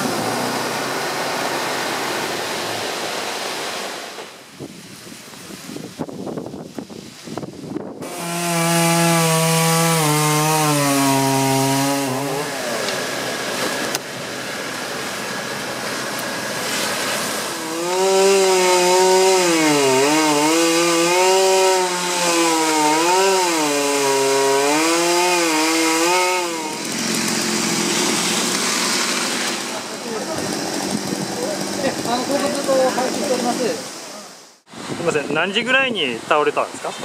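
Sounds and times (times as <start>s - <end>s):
chainsaw cutting wood: 8.0s - 14.1s, 16.1s - 33.3s.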